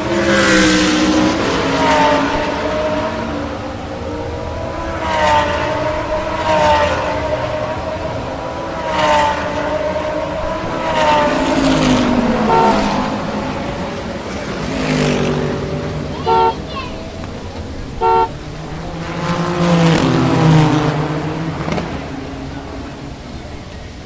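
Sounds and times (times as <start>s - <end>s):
race car engines passing by: 0.0s - 24.0s.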